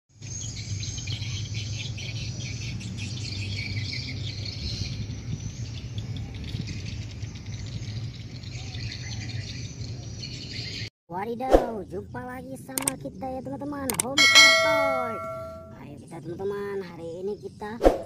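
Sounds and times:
birds chirping: 14.2 - 15.7.

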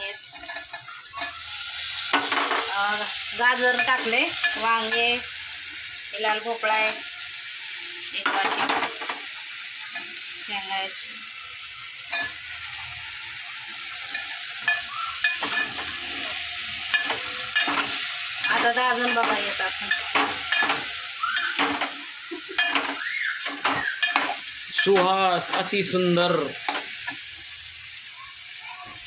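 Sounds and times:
vegetables sizzling: 0.0 - 29.0
ladle clinking and scraping pot: 14.1 - 16.2, 22.6 - 25.7.

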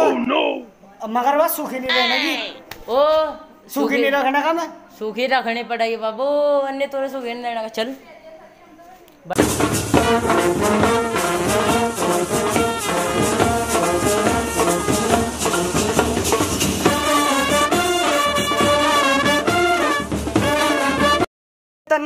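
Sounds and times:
steady drum beat: 9.4 - 21.2
brass band playing: 9.4 - 21.3.

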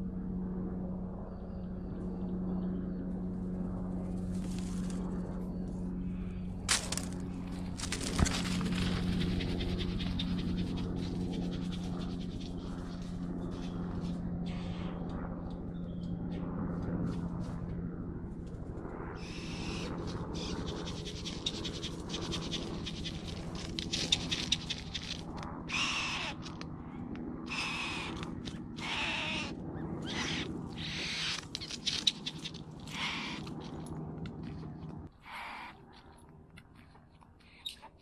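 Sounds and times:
low steady hum: 0.0 - 38.0
bird harsh hissing calls: 19.2 - 24.8, 25.7 - 26.5, 27.5 - 33.5, 35.2 - 35.8.

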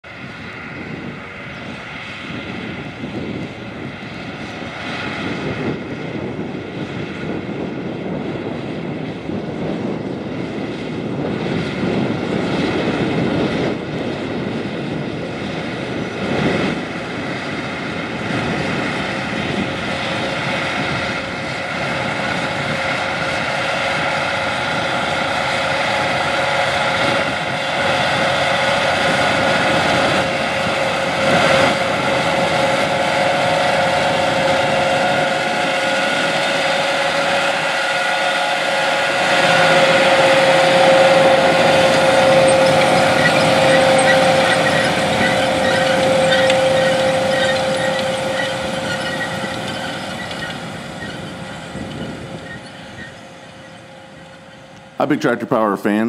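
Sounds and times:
steady whining tones: 0.0 - 55.8
tractor engine under load: 14.9 - 56.0.

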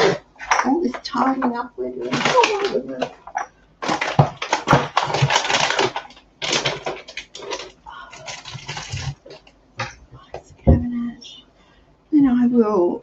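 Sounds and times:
kitchen items clattering: 0.0 - 10.9.

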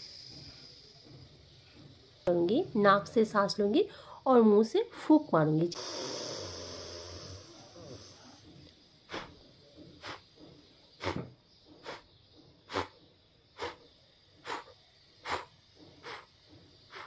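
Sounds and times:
woman blowing sharp puffs of breath: 5.7 - 8.3, 10.0 - 10.2, 11.8 - 12.1, 12.7 - 12.9, 13.6 - 17.0
breathing in through nose: 5.8 - 8.4, 13.6 - 13.8, 14.4 - 16.3.

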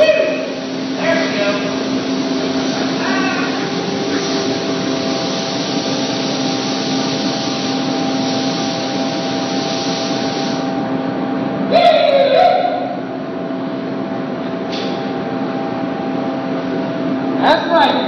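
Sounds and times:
paint sprayer hiss: 0.0 - 10.8.

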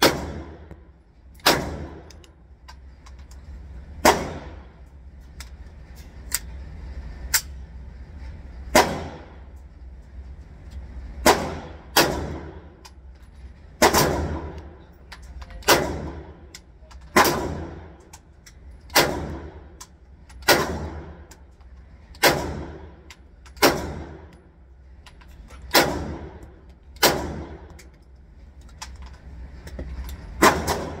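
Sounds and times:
pistol shots echoing indoors: 0.0 - 2.4, 3.9 - 4.9, 8.6 - 9.5, 11.1 - 12.9, 13.8 - 18.2, 18.9 - 19.8, 20.4 - 21.4, 22.1 - 24.6, 25.6 - 28.0, 30.4 - 31.0.

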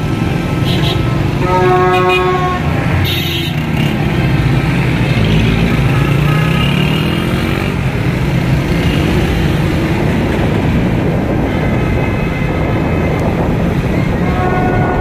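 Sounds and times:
motorcycle and car engines running: 0.0 - 15.0
engine revving: 1.4 - 10.1.

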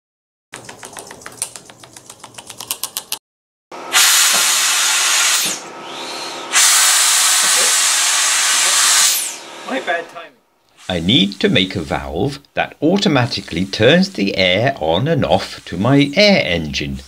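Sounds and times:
compressed air hissing from hose: 3.9 - 9.8, 10.7 - 11.7, 15.3 - 16.1.

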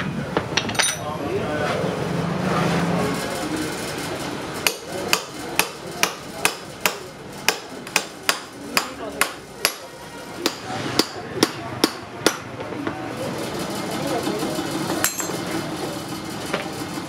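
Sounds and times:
hammer striking chisel: 4.6 - 12.7, 15.0 - 15.4.

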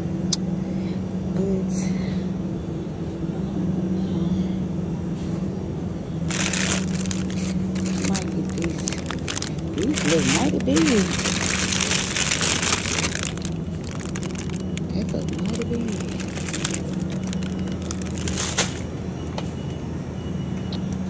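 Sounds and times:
rustling and crackling: 6.3 - 18.9.

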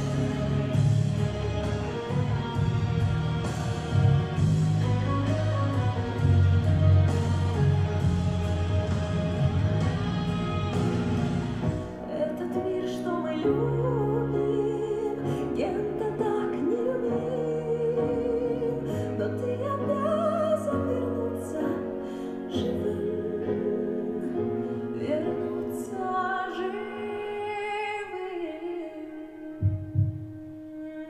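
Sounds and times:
sustained low accompaniment: 0.0 - 12.1
woman singing operatically: 12.0 - 29.6.

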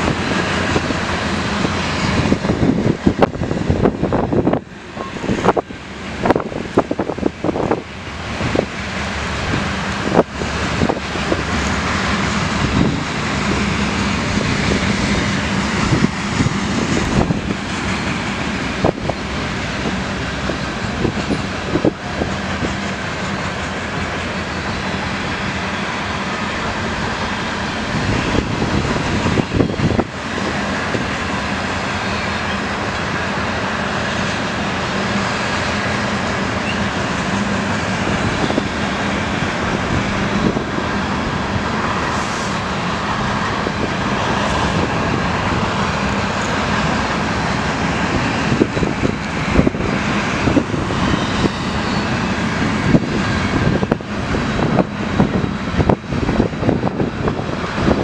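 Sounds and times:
freight train wheels rumbling on rails: 0.0 - 58.0.

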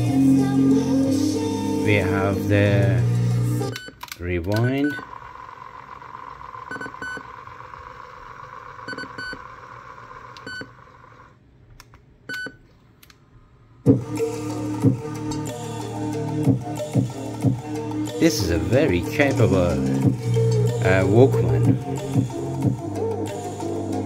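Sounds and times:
music playing through speakers: 0.0 - 3.7, 13.9 - 24.0
cassette tape rewinding whir: 0.0 - 4.0, 4.6 - 11.4, 13.9 - 24.0
clicks: 3.7 - 5.2, 11.7 - 13.2.

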